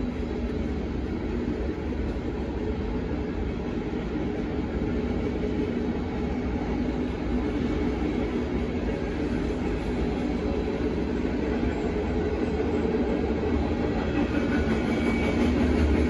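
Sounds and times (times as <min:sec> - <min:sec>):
train wheels rumbling on rails: 0:00.0 - 0:16.0.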